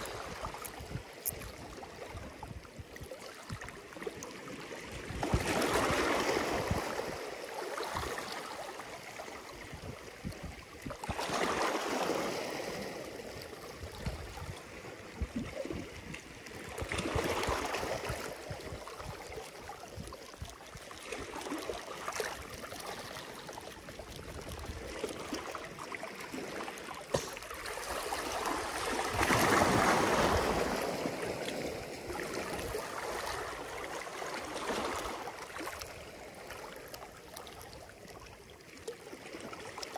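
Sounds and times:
water trickling between rocks: 0:00.0 - 0:04.4
small waves on rocky shore: 0:00.0 - 0:39.9.

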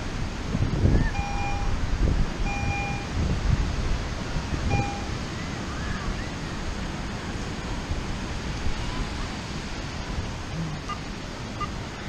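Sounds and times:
wind buffeting microphone: 0:00.0 - 0:12.0
metal detector beeps: 0:01.1 - 0:01.8, 0:02.5 - 0:03.1, 0:04.7 - 0:05.1.

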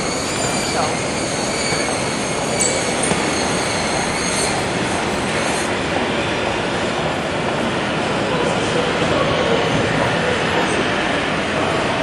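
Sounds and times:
high-pitched metal squeals: 0:00.0 - 0:05.7.

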